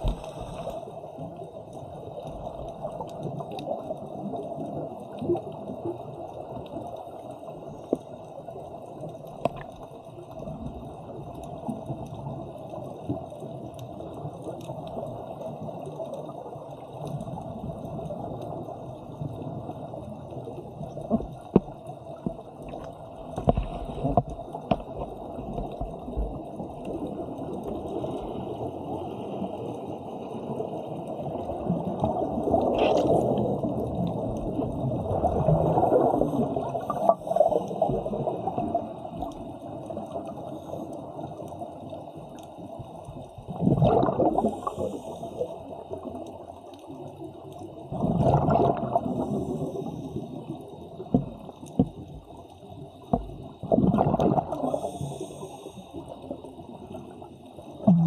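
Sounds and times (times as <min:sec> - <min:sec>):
bubbling water: 0:00.0 - 0:01.4, 0:09.3 - 0:42.3, 0:43.1 - 0:55.4, 0:56.4 - 0:58.0
exhaled bubbles bursting: 0:31.5 - 0:39.2, 0:43.4 - 0:45.0, 0:47.9 - 0:49.7, 0:53.2 - 0:54.9, 0:57.8 - 0:58.0
diver breathing through regulator: 0:54.5 - 0:56.2.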